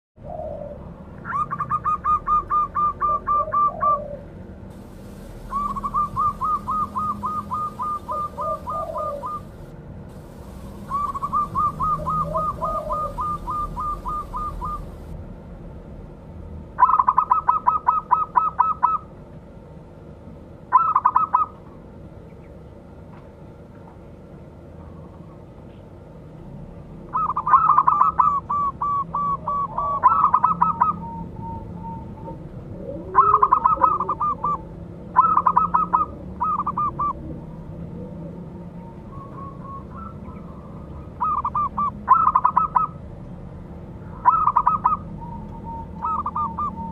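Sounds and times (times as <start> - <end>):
dove cooing song: 0.2 - 15.2, 16.8 - 19.1, 20.7 - 21.7, 27.1 - 43.0, 44.2 - 46.9
softer lower dove notes: 4.7 - 15.1.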